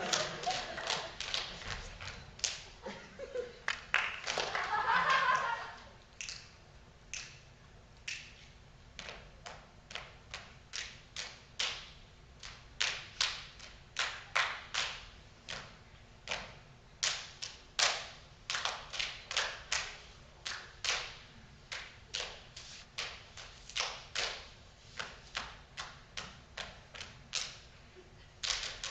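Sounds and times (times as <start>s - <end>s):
hand claps and body slaps: 0.1s - 2.7s, 3.7s - 4.8s, 6.2s - 27.7s, 28.4s - 28.9s.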